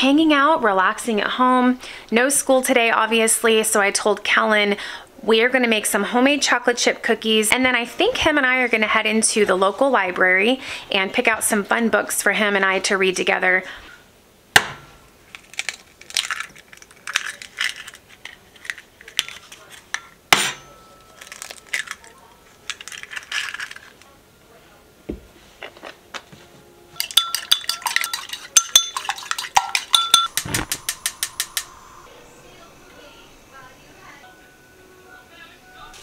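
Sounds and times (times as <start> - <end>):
eggs cracking on bowl rim: 27.0 - 31.8
gas igniter clicking: 30.2 - 31.8.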